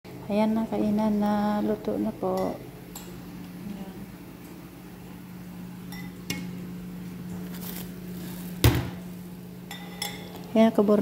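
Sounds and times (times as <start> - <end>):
steady low hum: 0.1 - 11.0
dishes clinking on metal tray: 9.7 - 10.4.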